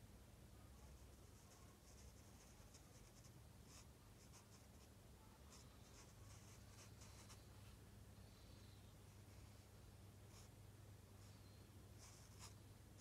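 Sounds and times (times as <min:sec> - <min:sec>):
faint low hum: 0:00.0 - 0:13.0
marker scratching on paper: 0:05.5 - 0:07.5, 0:12.0 - 0:13.0.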